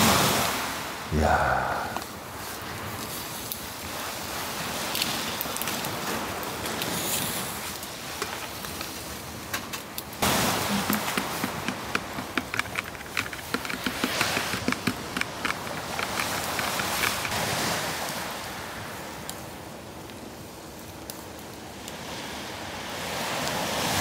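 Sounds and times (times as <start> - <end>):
sharp crackling pops: 7.7 - 17.5.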